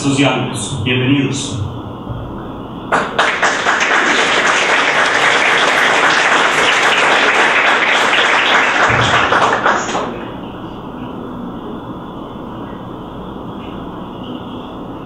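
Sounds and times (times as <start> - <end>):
audience applauding: 2.9 - 10.4.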